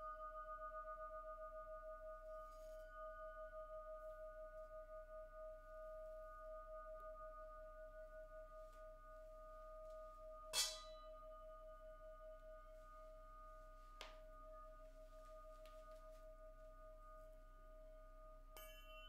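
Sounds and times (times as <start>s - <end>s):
struck crystal ring: 10.5s - 11.2s, 18.6s - 19.0s
crystal singing instruments ringing: 14.6s - 19.0s.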